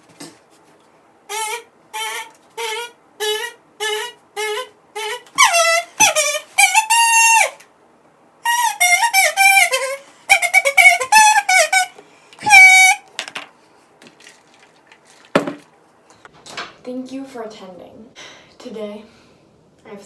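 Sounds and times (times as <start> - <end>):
kazoo playing a tune: 1.3 - 7.6, 8.4 - 13.1.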